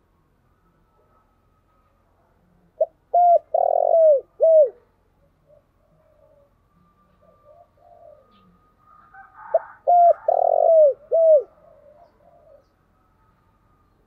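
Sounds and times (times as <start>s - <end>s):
dove cooing: 2.8s - 12.8s.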